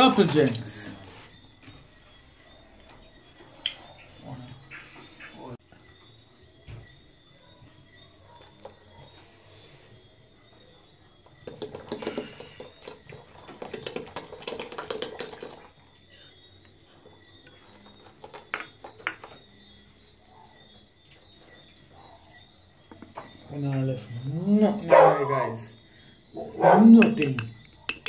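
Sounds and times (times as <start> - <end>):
thick liquid glugging into pot: 11.4 - 15.9
cans clicking and tapping: 11.4 - 16.1, 17.4 - 19.5, 26.9 - 28.0.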